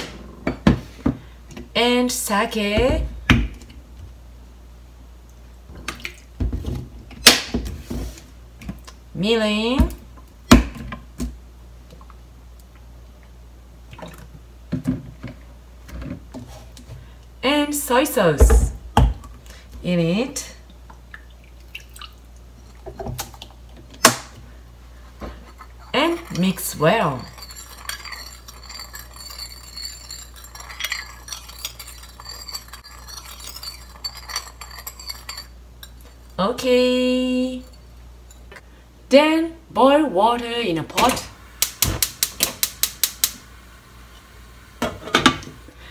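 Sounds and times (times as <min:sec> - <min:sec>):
spoon clinking against ceramic bowl: 0:25.9 - 0:36.4.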